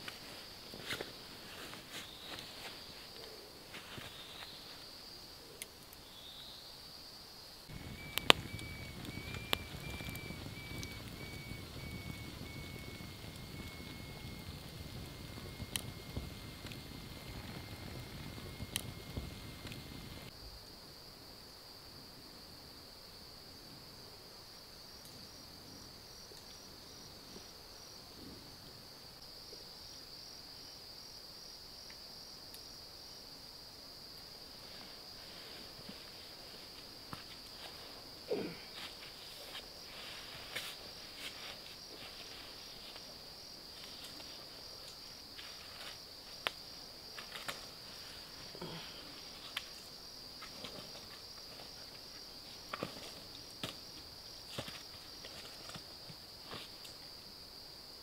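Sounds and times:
night insects trilling: 0.0 - 58.0
sticks and embers clicking and snapping: 7.7 - 20.3, 43.8 - 47.7, 48.6 - 52.0.

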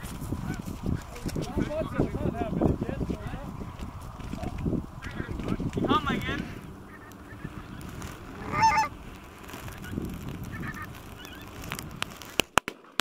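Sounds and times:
geese honking: 5.0 - 11.6.

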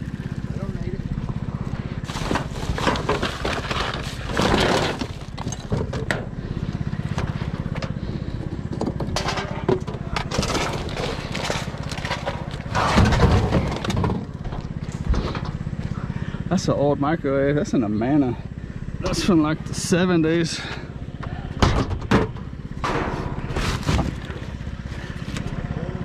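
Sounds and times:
vehicle engine idling: 0.0 - 26.0
junk clattering and knocking: 2.0 - 15.8, 20.6 - 24.8.

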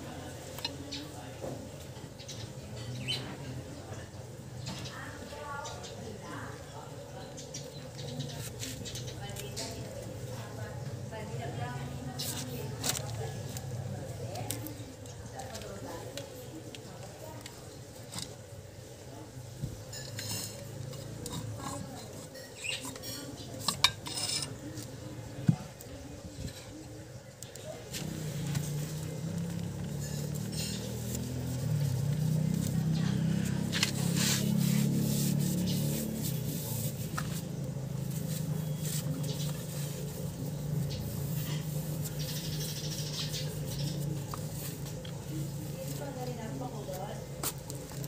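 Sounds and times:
metal clinks and scrapes: 19.9 - 24.7, 28.8 - 31.9
cloth rubbing on metal: 27.9 - 46.2.

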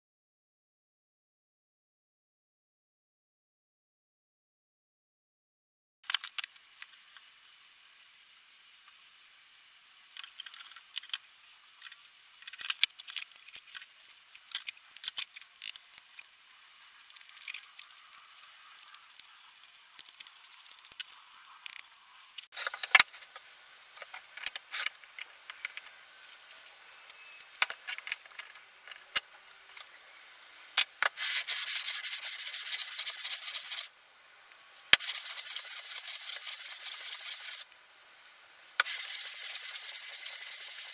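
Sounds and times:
metal parts scratching and clicking: 12.4 - 19.4, 20.0 - 21.8
plane sole rasping on sandpaper: 31.1 - 33.9, 35.0 - 37.6, 38.8 - 40.9.

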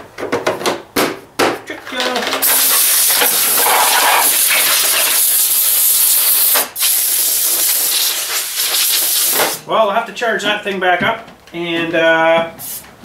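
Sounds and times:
compressed air hissing: 2.4 - 9.7, 12.6 - 13.0.

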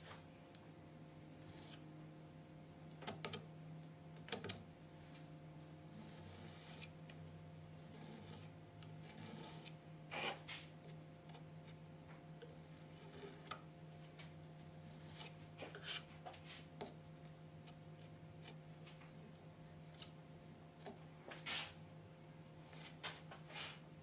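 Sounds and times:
steady low hum: 0.0 - 24.0
putty knife scraping: 1.4 - 1.8, 7.8 - 11.4, 12.4 - 13.7, 14.8 - 17.0.

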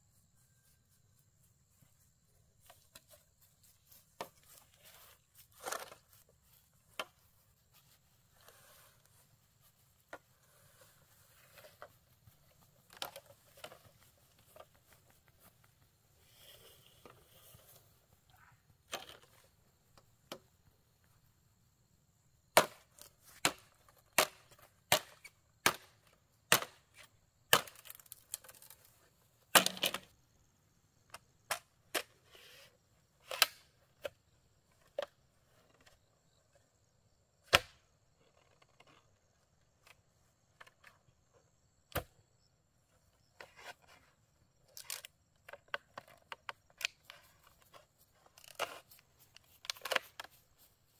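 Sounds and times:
machete chopping bamboo: 22.6 - 28.1, 29.5 - 30.0.

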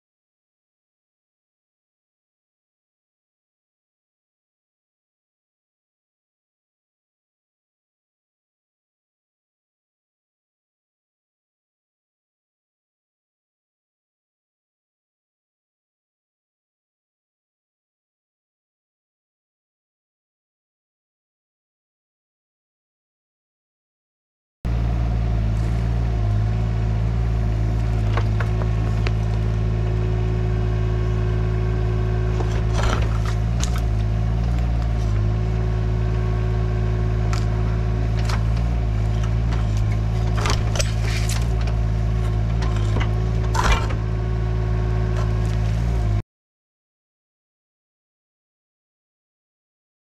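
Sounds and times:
excavator diesel engine running: 24.7 - 46.2
hydraulic whine: 27.2 - 46.2
bucket scraping concrete and stone: 40.8 - 41.5.

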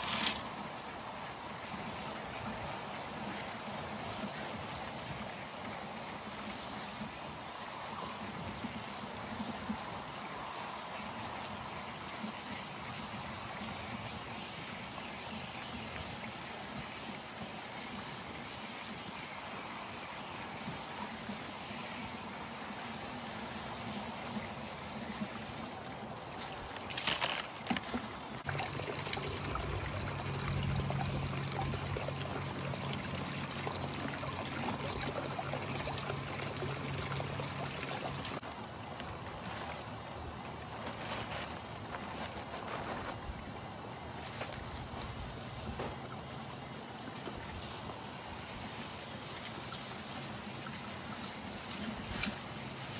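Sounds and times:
water pouring through pipe: 0.0 - 52.9
low steady hum: 23.7 - 48.6.

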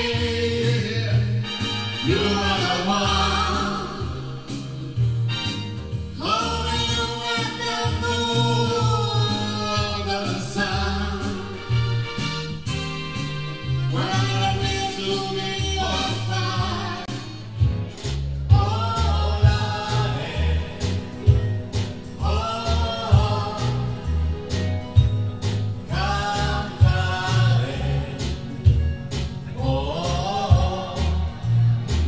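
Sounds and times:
person singing: 0.0 - 5.0, 6.2 - 11.8, 13.9 - 17.5, 18.5 - 21.4, 22.2 - 24.6, 25.9 - 32.0
bass: 0.0 - 32.0
keyboard: 0.0 - 32.0
drum beat: 17.1 - 20.1.

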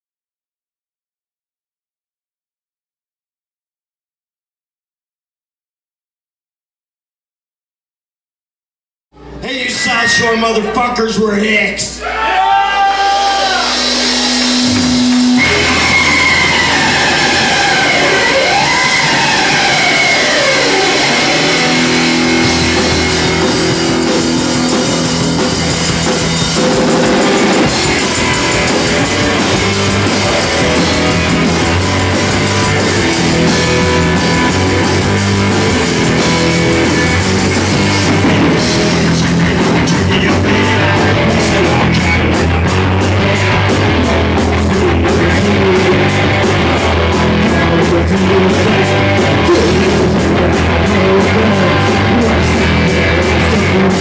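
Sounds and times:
drums: 9.2 - 54.0
electric guitar: 12.2 - 54.0
driving drum beat: 13.3 - 54.0.

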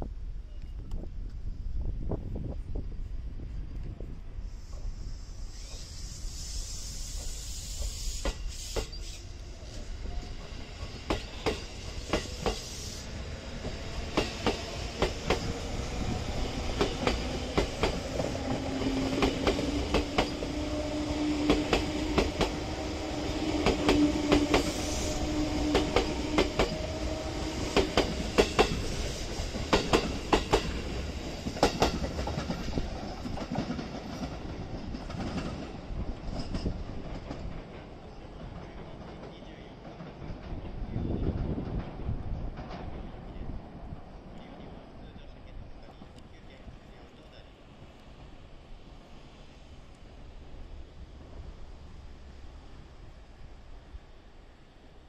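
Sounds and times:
train wheels clicking over rail joints: 6.6 - 12.9, 13.6 - 43.2.

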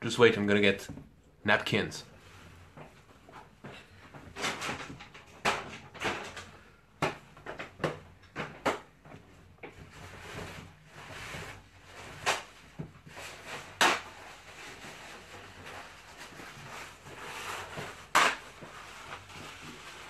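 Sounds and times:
rustling: 8.5 - 20.0.

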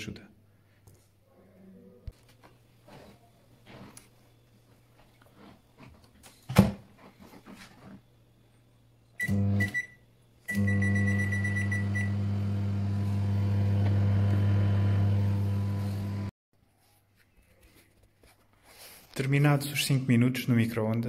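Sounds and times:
microwave humming: 8.0 - 16.3
microwave beeping: 9.1 - 16.3.

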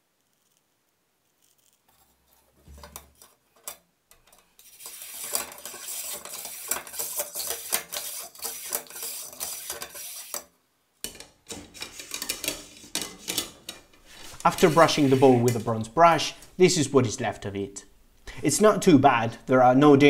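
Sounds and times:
brush scraping inside metal barrel: 4.6 - 10.5, 11.5 - 15.9.

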